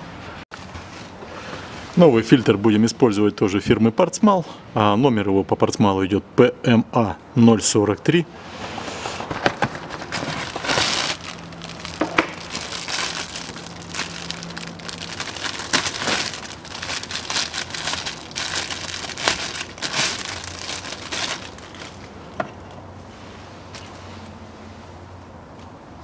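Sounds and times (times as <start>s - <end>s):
plastic and cardboard crinkling: 8.6s - 22.5s.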